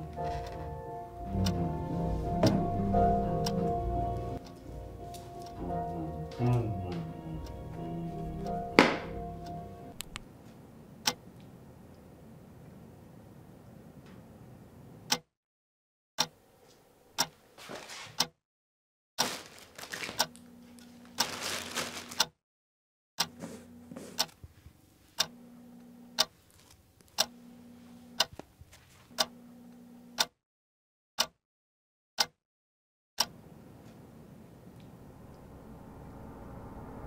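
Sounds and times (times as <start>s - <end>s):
low steady hum: 0.0s - 14.9s, 33.4s - 37.0s
clock ticking: 1.2s - 10.2s, 15.1s - 15.3s, 17.2s - 17.4s, 25.2s - 25.4s
scraping and rustling: 20.8s - 22.2s.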